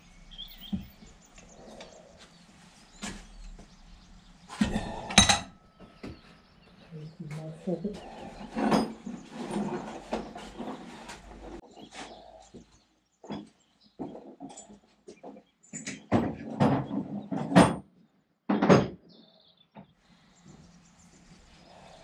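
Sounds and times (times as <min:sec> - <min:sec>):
metal scraping: 0:08.0 - 0:12.2.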